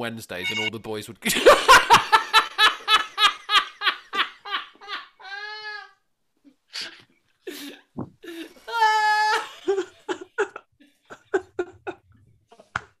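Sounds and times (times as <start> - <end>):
men laughing hard: 1.3 - 5.5, 8.2 - 12.7.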